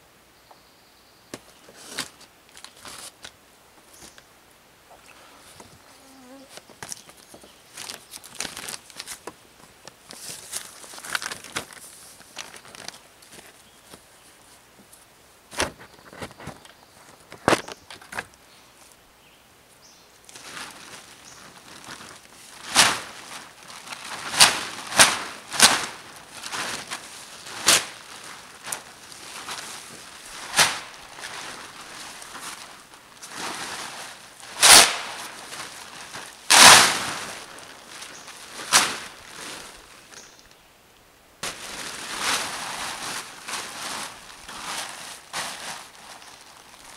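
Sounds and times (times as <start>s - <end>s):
plastic tarp crackling and rustling: 1.7s - 3.4s, 5.6s - 14.6s, 20.2s - 40.5s, 41.4s - 46.9s.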